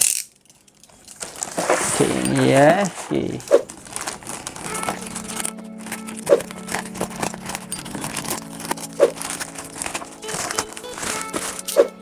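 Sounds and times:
plastic bag crinkling and tearing: 0.0 - 12.0
background music with held notes: 3.9 - 12.0.

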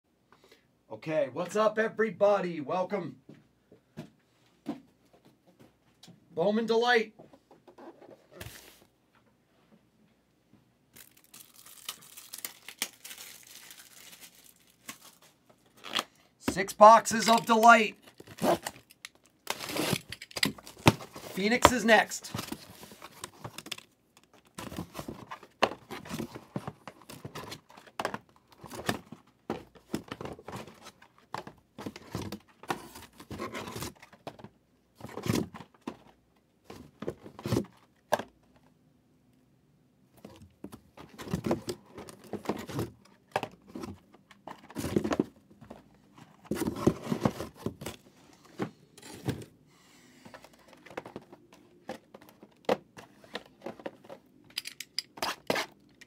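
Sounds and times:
cardboard tearing and crinkling: 11.0 - 16.1, 17.4 - 21.7.

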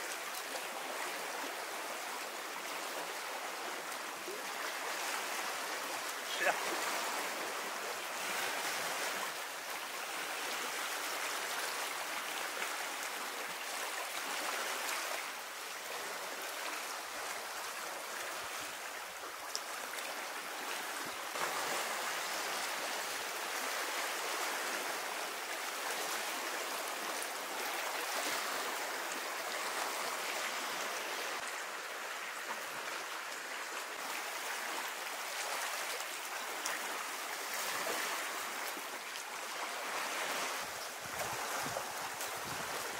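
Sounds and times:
sea waves washing on shore: 0.0 - 42.9.

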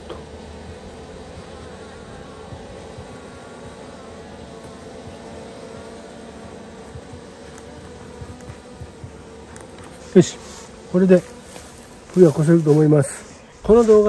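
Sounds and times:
bees buzzing: 0.0 - 14.0.

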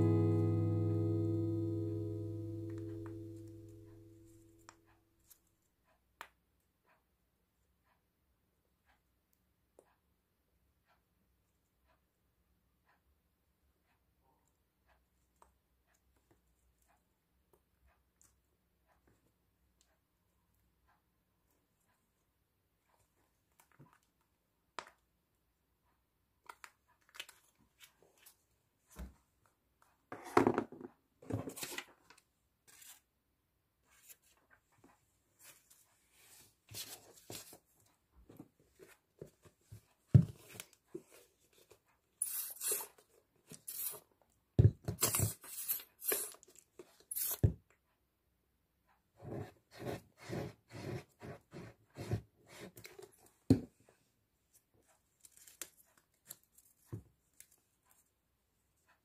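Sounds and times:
paper and card rustling: 31.3 - 33.1.

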